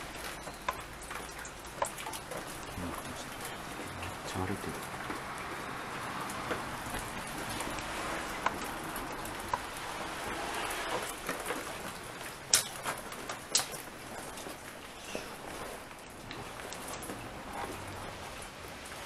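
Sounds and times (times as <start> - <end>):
sharp cracks: 12.2 - 14.2.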